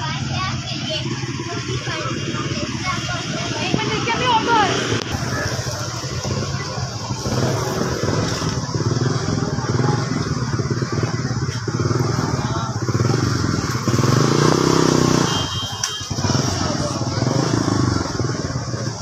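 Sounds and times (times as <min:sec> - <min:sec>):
small engine running: 0:00.0 - 0:19.0.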